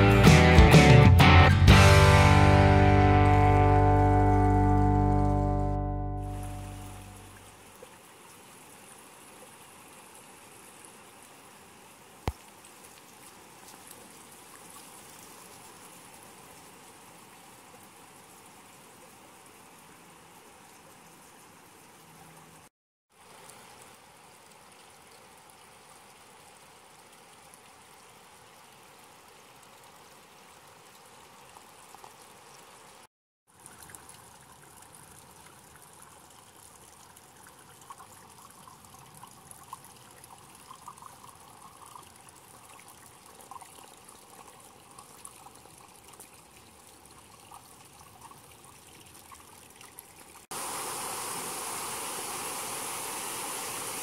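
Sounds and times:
water trickling gently: 0:03.4 - 0:54.0
water rushing over rocks: 0:50.5 - 0:54.0.

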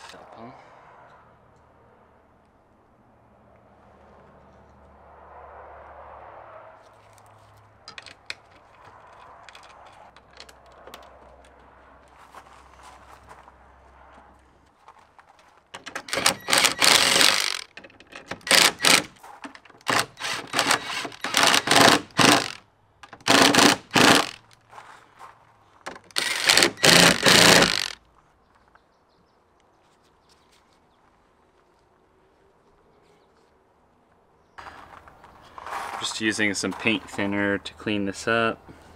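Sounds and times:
cordless drill driving bolts: 0:15.8 - 0:24.5, 0:25.9 - 0:28.0.

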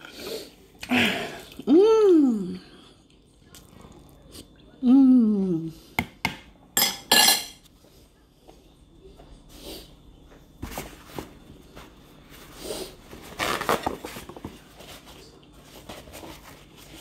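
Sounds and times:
paper towel rustling: 0:10.6 - 0:17.0.

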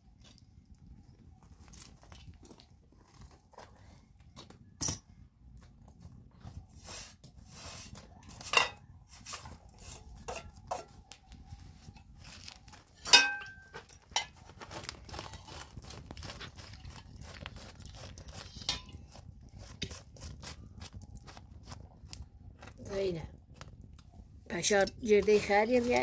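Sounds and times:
metal dishes clinking: 0:08.4 - 0:08.8, 0:13.0 - 0:14.4.

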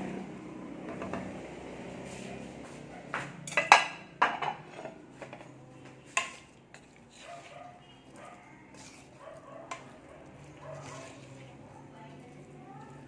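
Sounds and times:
kitchen utensils clinking and clattering: 0:03.4 - 0:05.5.

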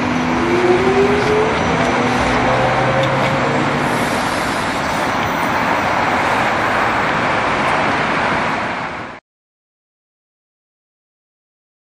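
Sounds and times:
tyre and road noise: 0:00.0 - 0:09.2.

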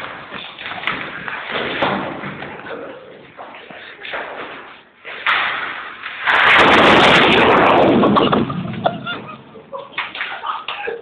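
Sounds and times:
firecracker bursting: 0:05.3 - 0:09.5.

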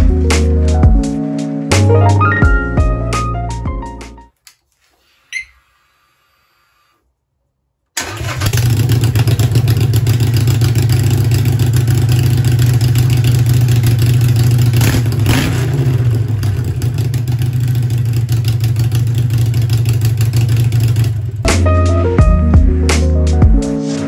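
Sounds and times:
motorcycle engine idling: 0:08.5 - 0:21.4.

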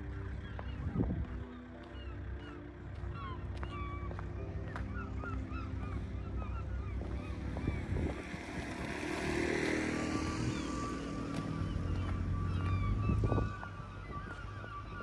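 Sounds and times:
vehicle passing on road: 0:05.5 - 0:15.0.

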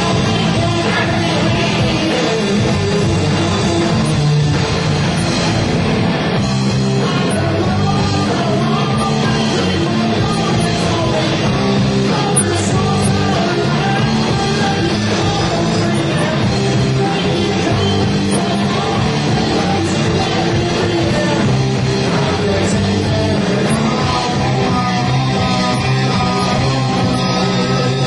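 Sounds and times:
rock band playing live: 0:00.0 - 0:28.0.

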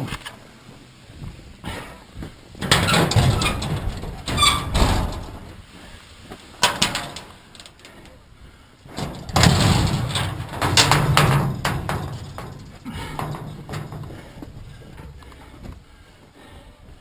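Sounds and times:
metal door squeak: 0:02.6 - 0:05.4
loud rustling and clattering: 0:02.6 - 0:08.0, 0:08.9 - 0:15.8.

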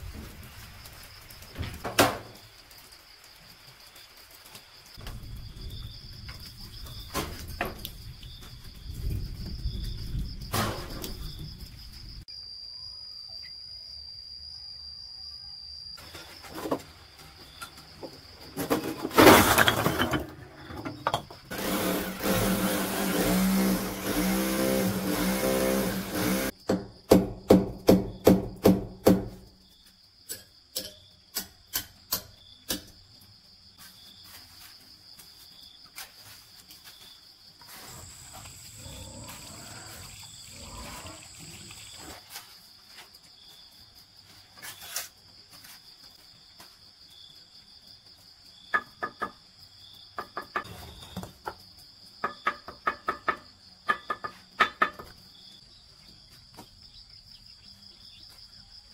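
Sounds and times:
loud rough noise: 0:21.5 - 0:26.5
motor running: 0:21.5 - 0:26.5
sharp knocks: 0:26.6 - 0:29.4.

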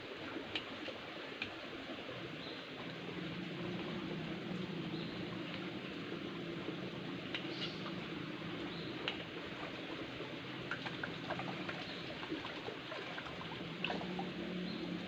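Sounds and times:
shallow stream running: 0:00.0 - 0:15.0.

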